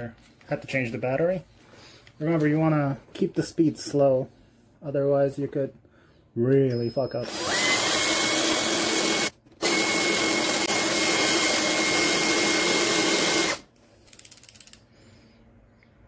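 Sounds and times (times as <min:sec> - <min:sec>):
cordless drill whining: 0:07.1 - 0:13.7.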